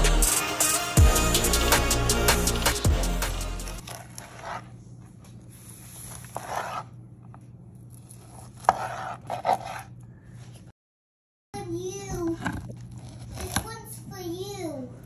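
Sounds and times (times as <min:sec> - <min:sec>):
knife sawing through ribs: 0:03.2 - 0:04.8, 0:06.0 - 0:06.9, 0:08.1 - 0:10.0.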